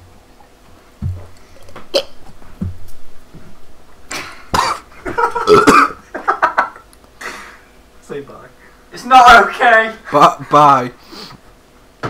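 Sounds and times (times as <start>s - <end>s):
man gulping: 1.0s - 2.8s, 4.1s - 6.0s
man coughing and gasping: 4.1s - 6.0s.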